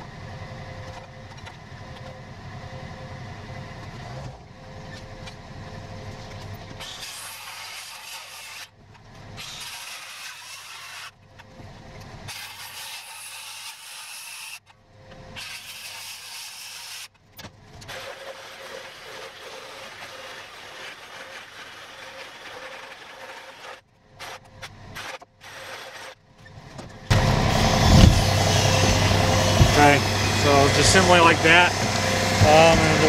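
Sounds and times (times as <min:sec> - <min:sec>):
circular saw cutting wood: 0:06.7 - 0:11.2, 0:12.2 - 0:14.7, 0:15.3 - 0:17.2, 0:17.8 - 0:33.0.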